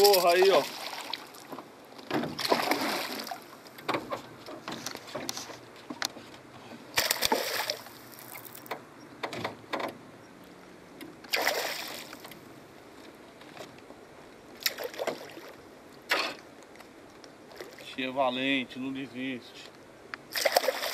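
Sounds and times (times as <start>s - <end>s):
fish thrashing and splashing in water: 0.0s - 1.5s, 2.3s - 3.6s, 7.0s - 8.6s, 11.3s - 12.2s, 14.6s - 15.5s, 20.3s - 20.9s.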